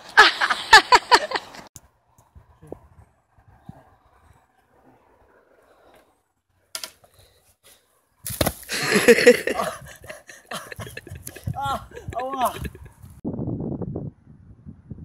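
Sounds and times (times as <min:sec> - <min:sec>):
stick cracking: 0:06.7 - 0:07.1, 0:08.2 - 0:08.7.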